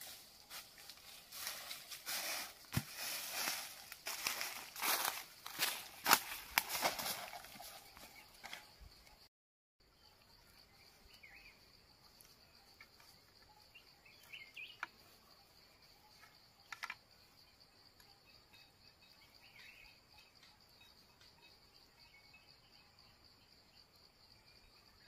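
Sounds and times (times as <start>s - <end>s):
insect drone: 0.0s - 25.0s
bird chirps: 9.9s - 11.8s, 12.5s - 23.7s.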